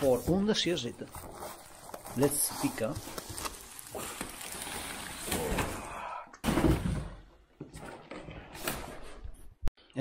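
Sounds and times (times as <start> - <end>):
cardboard and paper rustling: 0.0 - 5.8.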